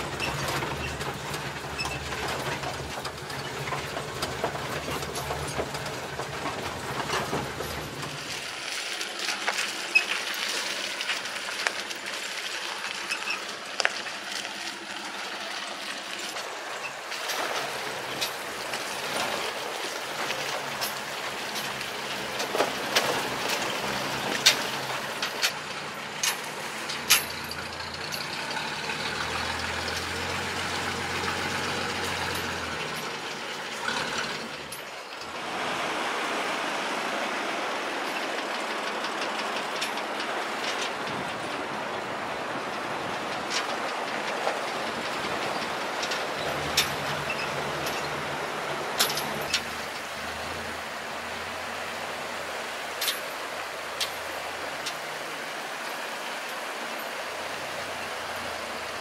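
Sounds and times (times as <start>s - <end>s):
truck body clanking and knocking: 0.0s - 8.6s, 16.4s - 35.4s, 37.8s - 55.2s
truck engine running: 0.0s - 59.0s.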